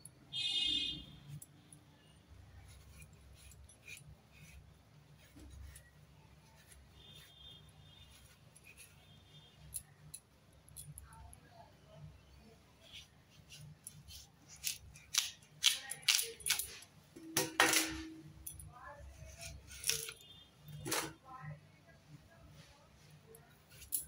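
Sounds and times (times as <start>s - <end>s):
root scraping against blade: 19.2s - 20.2s.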